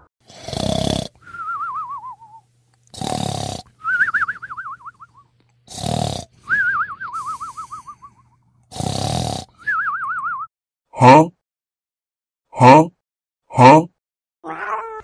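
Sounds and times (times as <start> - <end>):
cartoon rasping snore: 0.3 - 1.2, 2.9 - 3.7, 5.7 - 6.3, 8.7 - 9.6
high warbling whistle: 6.5 - 8.2.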